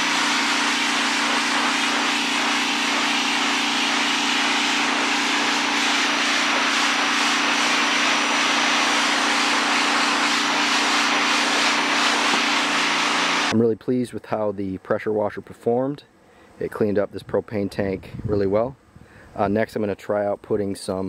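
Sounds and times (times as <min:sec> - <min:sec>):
water jet hissing on metal: 0:00.0 - 0:13.5
electric motor and pump hum: 0:00.0 - 0:13.6.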